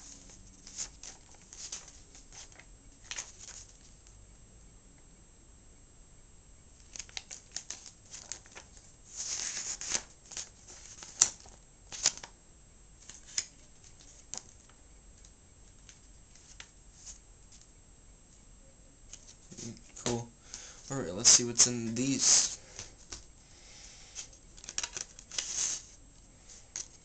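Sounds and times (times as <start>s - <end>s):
paper rustling: 0.0s - 4.0s, 6.8s - 12.4s, 13.0s - 14.8s, 15.7s - 17.7s, 20.6s - 23.3s, 24.1s - 27.0s.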